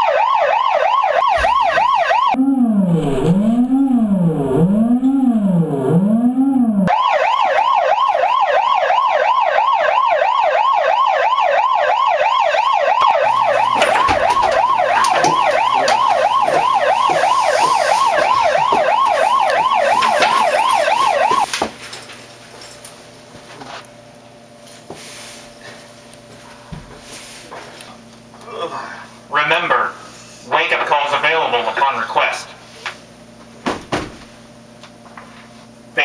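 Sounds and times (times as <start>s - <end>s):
megaphone siren: 0.0s - 21.5s
rustling and knocks: 13.7s - 22.2s.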